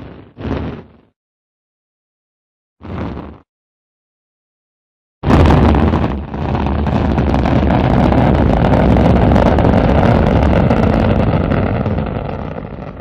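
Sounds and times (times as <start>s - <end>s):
rocket engine firing: 5.2s - 13.0s.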